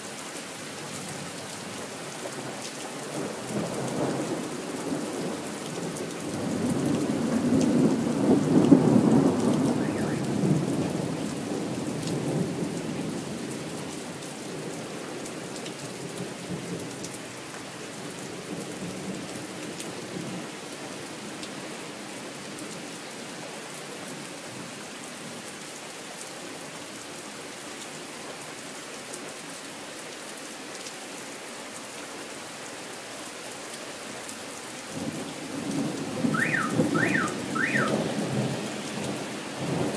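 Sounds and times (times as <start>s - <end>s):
rain on pavement and cars: 0.0s - 39.9s
rolling thunder: 6.5s - 12.5s, 35.0s - 39.9s.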